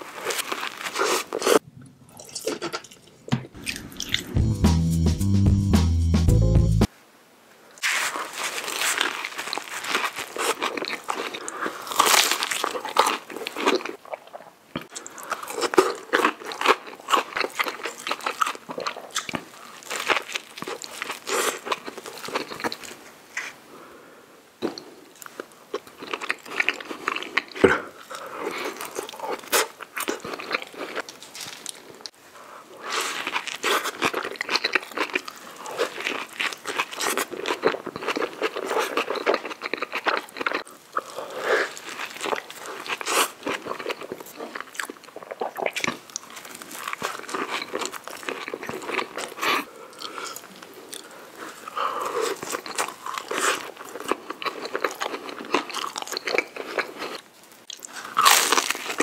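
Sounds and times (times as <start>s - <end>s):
man biting and chewing food: 0.1s - 5.6s, 32.8s - 59.0s.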